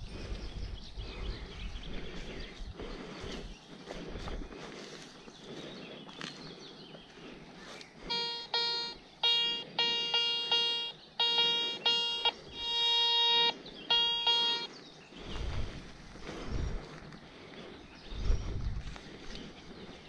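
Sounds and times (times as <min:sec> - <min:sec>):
metal detector beeps: 0:08.1 - 0:14.7.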